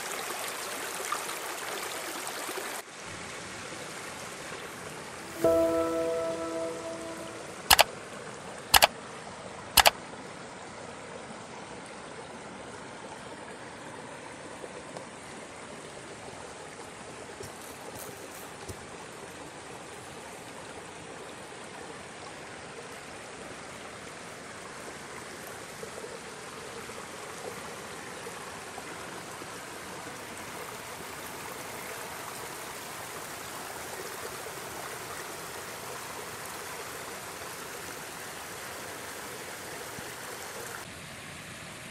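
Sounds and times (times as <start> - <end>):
stream rushing over rocks: 0.0 - 7.1, 8.3 - 41.9
mouse click effect: 5.3 - 7.9.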